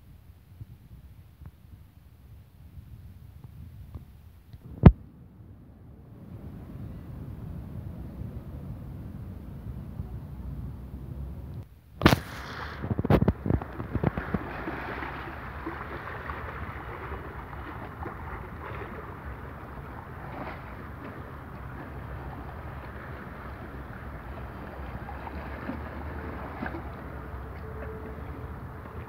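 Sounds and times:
wind rumble on microphone: 0:00.0 - 0:29.0
sharp knocks or splashes: 0:12.0 - 0:29.0
waves lapping against rocks: 0:12.0 - 0:29.0.

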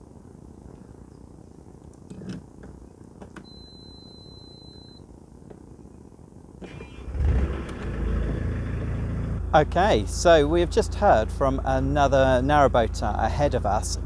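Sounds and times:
warning buzzer beep: 0:03.5 - 0:05.0
engine starter cranking: 0:06.6 - 0:08.3
boat engine running: 0:06.7 - 0:14.0.

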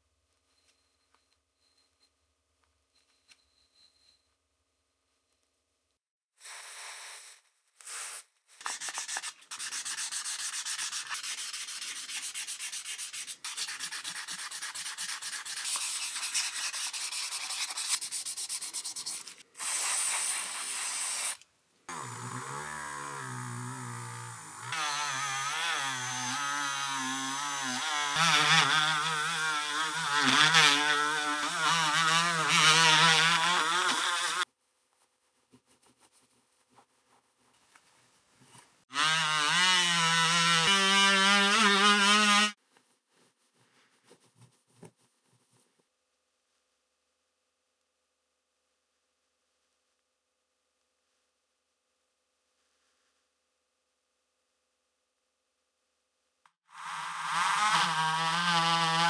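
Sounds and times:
rotary tool motor whine: 0:56.8 - 0:59.0.

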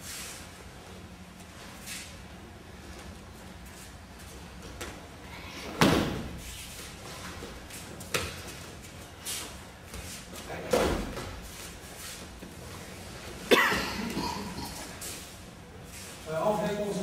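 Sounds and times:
bodies slapping onto a mat: 0:05.7 - 0:06.5.

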